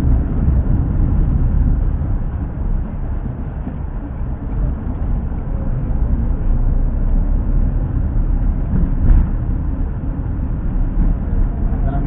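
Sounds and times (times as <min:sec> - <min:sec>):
low rumble of moving vehicle: 0:00.0 - 0:12.0.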